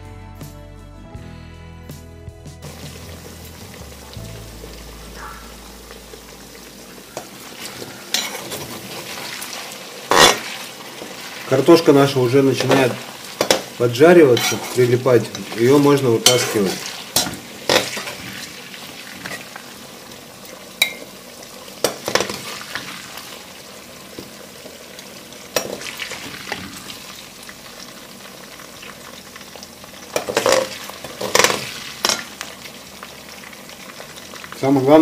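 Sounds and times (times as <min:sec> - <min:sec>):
potatoes sizzling in hot oil: 0:02.6 - 0:35.0
metal skimmer clinking on pot: 0:16.2 - 0:18.0, 0:20.8 - 0:21.1.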